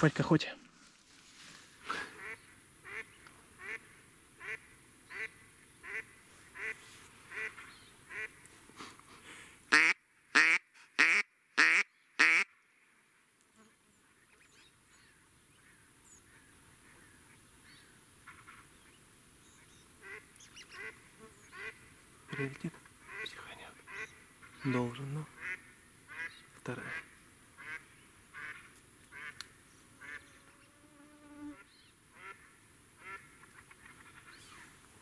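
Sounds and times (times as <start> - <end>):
duck quacking: 2.1 - 3.8, 4.4 - 8.3, 9.7 - 12.5, 20.0 - 23.3, 23.9 - 28.6, 30.0 - 30.2.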